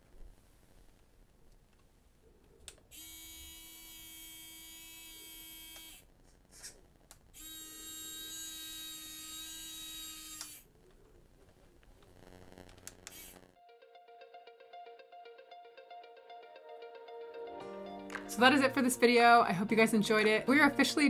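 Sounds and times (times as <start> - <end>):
small electric winch motor whine: 2.9 - 6.1, 7.4 - 10.6, 12.1 - 13.6.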